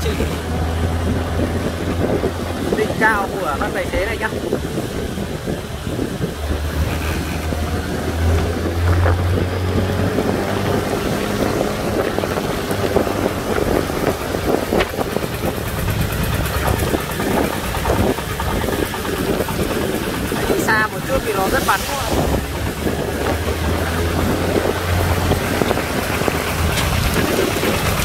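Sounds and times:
vehicle engine drone: 0:00.0 - 0:28.0
wind noise on microphone: 0:00.0 - 0:28.0.

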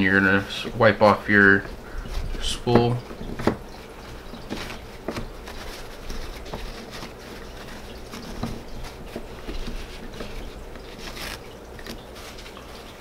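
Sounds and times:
paper towel rubbing on reel: 0:00.0 - 0:13.0.

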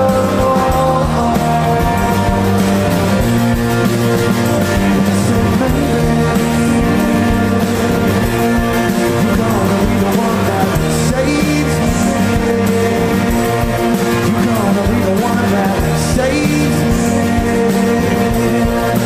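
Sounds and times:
rock band playing live: 0:00.0 - 0:19.0.

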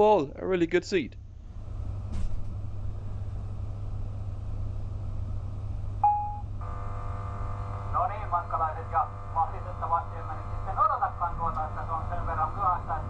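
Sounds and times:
train rumble and hum: 0:01.5 - 0:06.0, 0:08.4 - 0:13.0
short electronic beep: 0:06.0 - 0:06.4
electronic buzz: 0:06.0 - 0:13.0.

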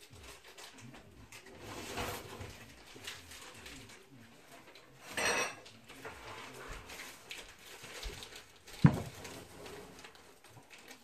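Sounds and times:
pie pan clattering: 0:05.0 - 0:05.8.

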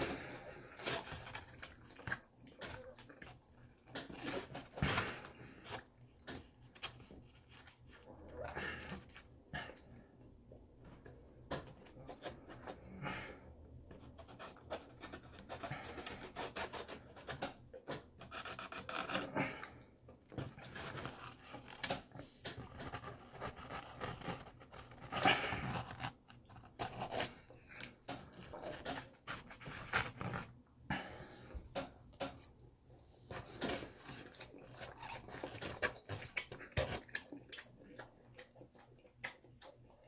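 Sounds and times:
fork scraping foam container: 0:00.0 - 0:03.1, 0:14.0 - 0:17.6, 0:20.6 - 0:30.6
chewing and lip smacking: 0:34.3 - 0:40.0.

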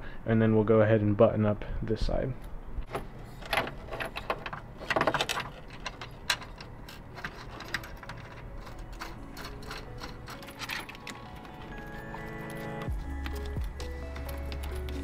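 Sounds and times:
metal tools clicking on bracket: 0:03.5 - 0:13.6.

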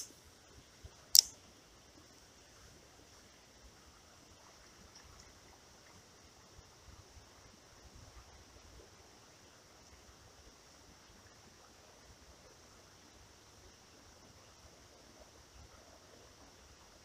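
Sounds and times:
faint high hiss: 0:00.0 - 0:17.0
fishing reel click: 0:01.2 - 0:01.4.

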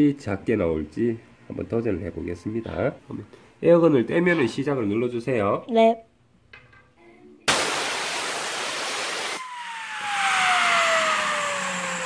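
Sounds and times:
air blow gun hissing: 0:07.5 - 0:12.0
spinner bearing whine: 0:08.8 - 0:12.0.

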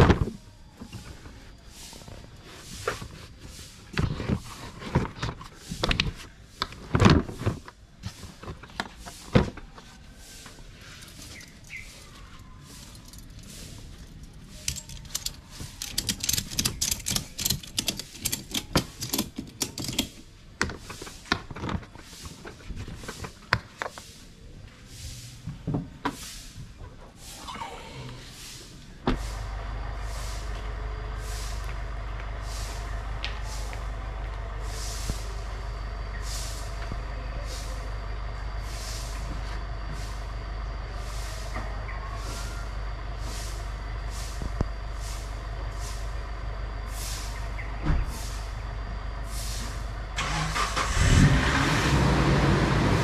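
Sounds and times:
ratchet strap clicking: 0:14.6 - 0:20.1.

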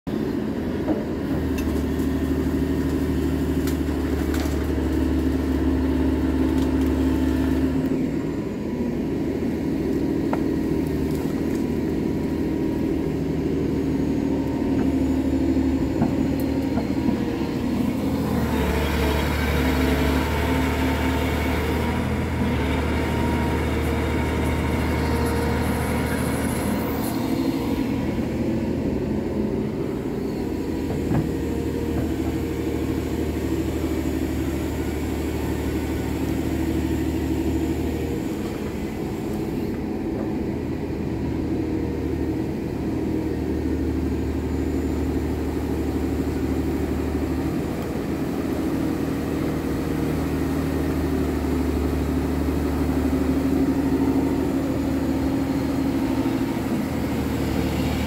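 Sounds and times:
excavator diesel engine running: 0:00.1 - 0:58.0.

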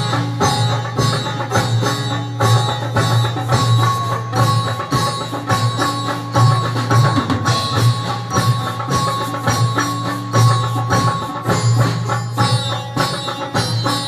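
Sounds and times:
hand drums beat: 0:00.0 - 0:14.0
sitars: 0:00.0 - 0:14.0.

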